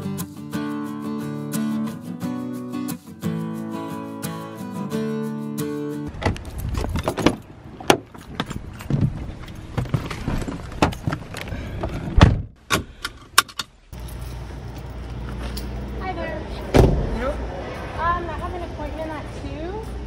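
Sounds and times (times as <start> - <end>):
car door thumping shut: 12.1 - 12.6, 16.7 - 17.1.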